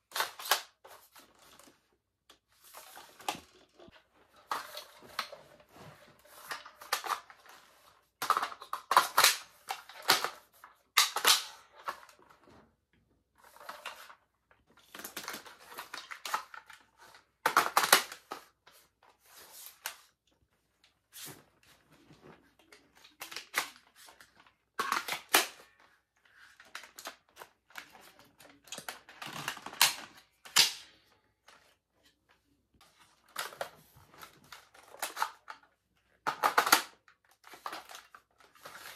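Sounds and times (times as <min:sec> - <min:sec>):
toy rifle clicks and rattles: 0:08.2 - 0:10.4, 0:11.0 - 0:12.1, 0:34.5 - 0:38.9.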